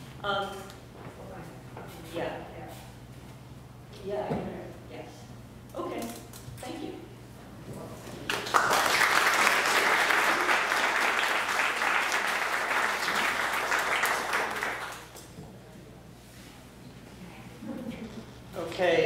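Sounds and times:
audience applauding: 8.3 - 15.1.

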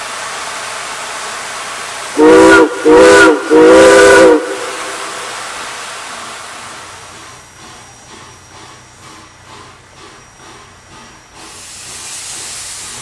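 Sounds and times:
steady steam hiss: 0.0 - 13.0
steam whistle blasts: 2.1 - 5.6.

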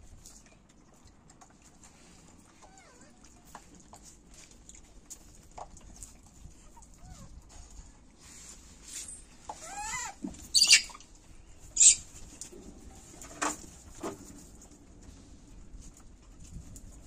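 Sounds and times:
monkey shrieks: 9.6 - 11.0, 11.8 - 12.0
monkey squeal: 9.6 - 11.0, 11.8 - 12.0
sharp monkey calls: 9.7 - 11.0, 11.8 - 12.0.

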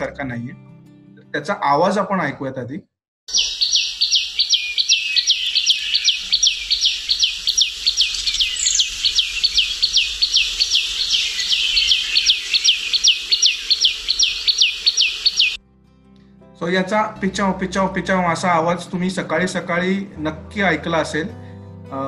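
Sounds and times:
bird singing sharp high notes: 3.3 - 15.6.

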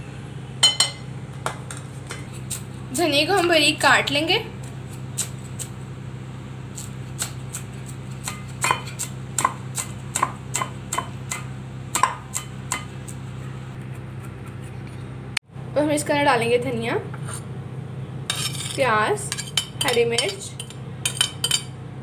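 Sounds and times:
low hum: 0.0 - 6.7
knife chopping on board: 6.8 - 12.9.

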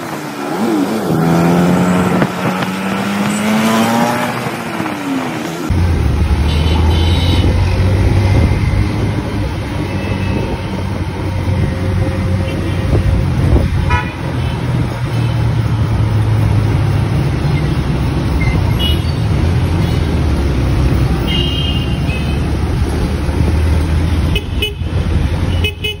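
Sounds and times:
vehicle horn toots: 6.4 - 7.6, 13.9 - 14.5.

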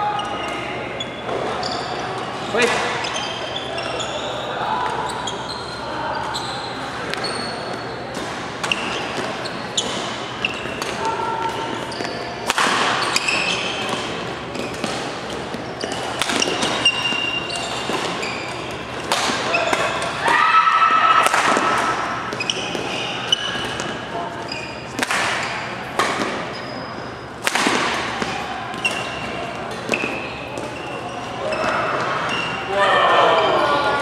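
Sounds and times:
shoes squeaking on floor: 0.0 - 20.2, 21.8 - 27.4, 28.3 - 32.7
racket striking shuttlecock: 12.4 - 18.2, 19.0 - 20.2, 27.4 - 29.1.

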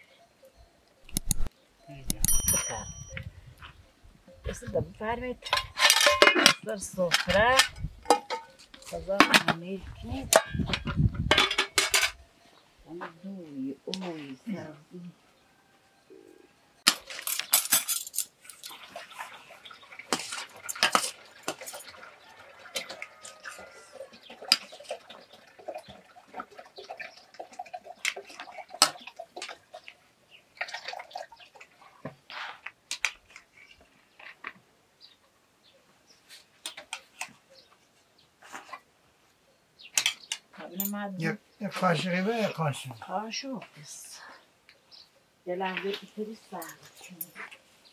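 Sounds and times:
dishes and spoons clattering: 1.1 - 3.3, 5.4 - 9.6, 10.2 - 12.2, 16.8 - 18.9, 20.1 - 25.0.

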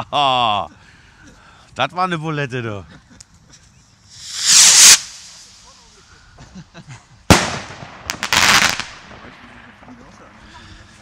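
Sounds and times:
firework launch whoosh: 4.1 - 6.0, 7.3 - 8.9
firework crackling: 4.1 - 6.2, 7.3 - 10.3
firework shell bang: 7.3 - 8.8.

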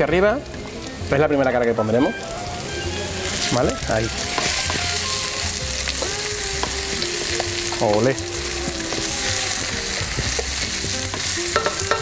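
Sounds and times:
fish and onions sizzling in oil: 0.0 - 12.0
spatula tapping pan: 5.9 - 8.0, 10.1 - 12.0.

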